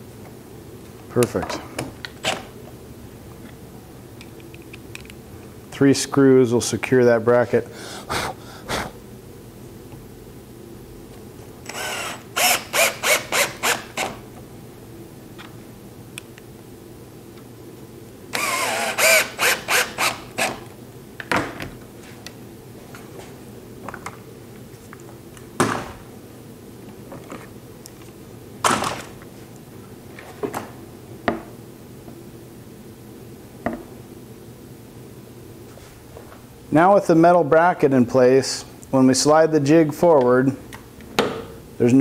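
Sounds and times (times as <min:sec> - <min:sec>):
cordless drill whirring: 0:11.6 - 0:14.2, 0:18.3 - 0:20.6.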